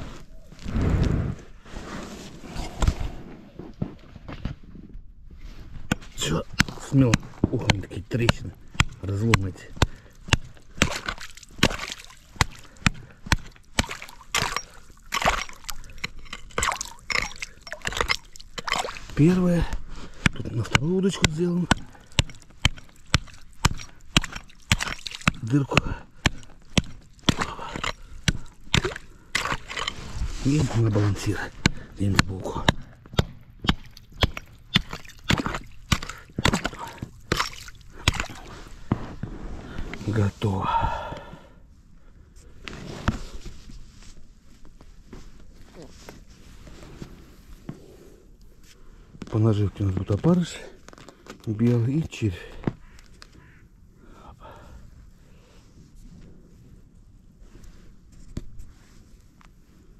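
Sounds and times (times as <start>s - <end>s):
axe striking ice: 5.9s - 19.4s, 20.2s - 38.6s
water and ice splashing: 6.1s - 40.3s.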